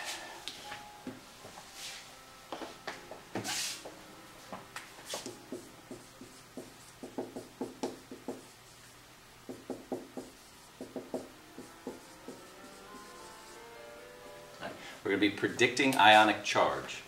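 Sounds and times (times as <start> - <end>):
marker squeaking on whiteboard: 9.7 - 13.6.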